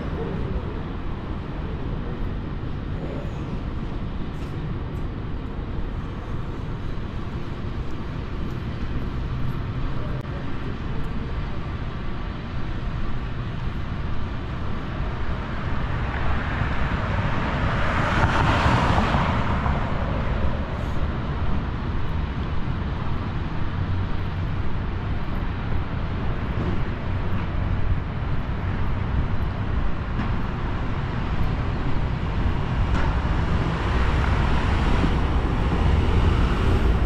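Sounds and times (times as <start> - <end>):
rumble of passing vehicles: 0.0 - 37.0.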